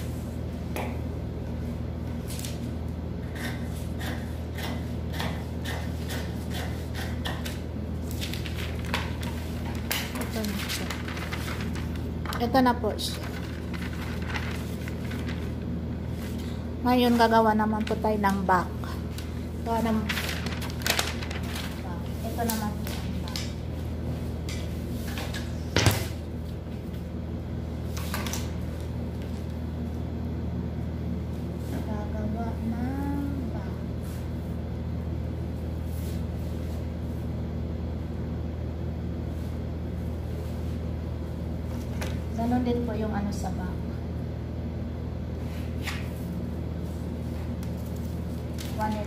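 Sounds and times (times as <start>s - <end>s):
steady low hum: 0.0s - 49.0s
paper rustling: 8.0s - 16.5s, 19.1s - 23.5s.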